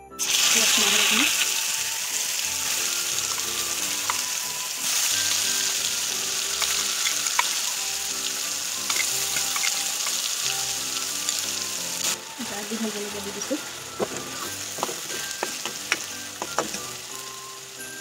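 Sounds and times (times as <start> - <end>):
paste sizzling in hot oil: 0.2 - 18.0
metal spoon clicking on pan: 8.9 - 10.2.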